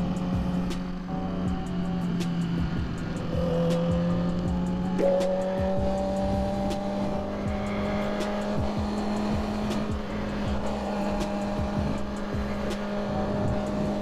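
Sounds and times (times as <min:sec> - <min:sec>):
background music with beat: 0:00.0 - 0:14.0
motorcycle engine running: 0:00.0 - 0:14.0.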